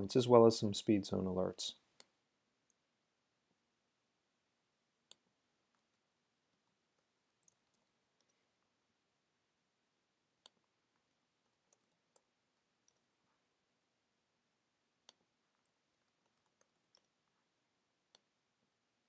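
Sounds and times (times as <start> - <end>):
mouse and keyboard clicks: 5.1 - 8.4, 10.4 - 13.1, 15.0 - 17.2.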